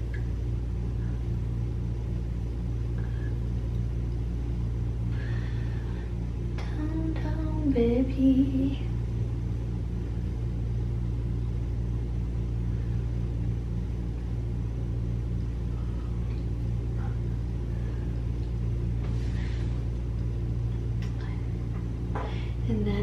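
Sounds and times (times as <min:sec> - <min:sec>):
low mechanical hum: 0:00.0 - 0:23.0.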